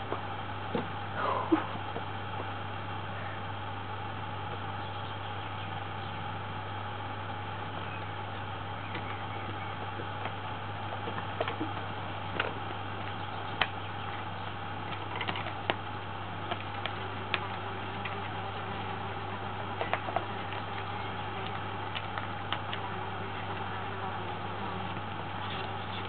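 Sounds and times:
low hum: 0.0s - 26.0s
kitten paws tapping and scratching: 8.9s - 26.0s.

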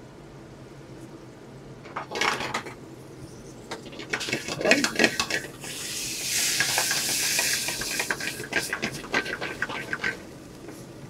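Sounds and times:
wine hissing and sizzling in pan: 4.1s - 10.2s.

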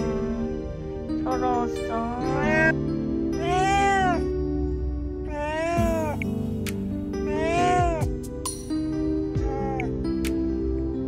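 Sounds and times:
soft background music: 0.0s - 11.0s
cat meowing: 2.2s - 2.8s, 3.4s - 4.4s, 5.3s - 6.2s, 7.2s - 8.1s, 9.4s - 9.9s.

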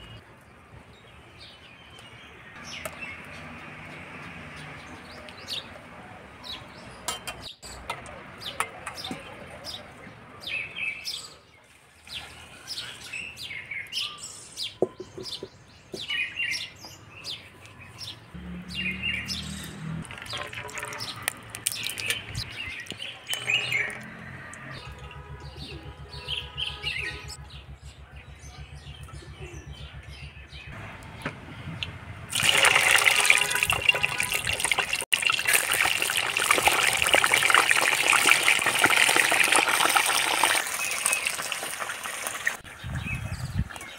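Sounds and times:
small birds chirping: 1.4s - 32.1s
chicken deep-frying in oil: 20.0s - 24.0s, 32.3s - 42.8s.

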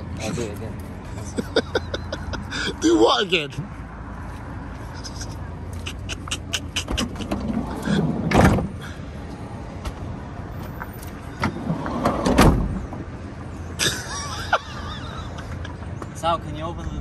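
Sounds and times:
sliding van door on rails: 7.0s - 8.8s, 11.4s - 12.8s.

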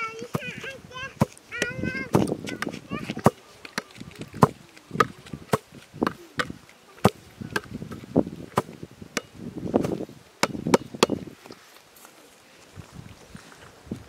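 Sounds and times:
ball bouncing thumps: 1.2s - 11.2s.

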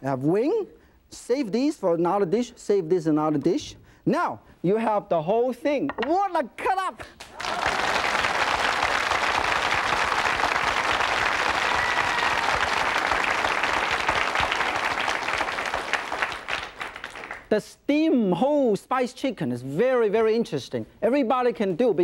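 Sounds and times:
audience applauding: 7.2s - 17.5s.

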